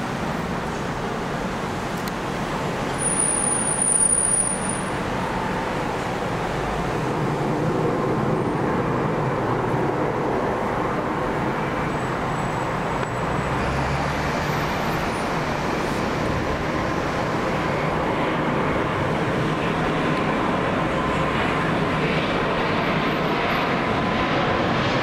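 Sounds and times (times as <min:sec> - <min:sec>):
jet aircraft rumble: 0:04.8 - 0:13.6, 0:15.0 - 0:25.0.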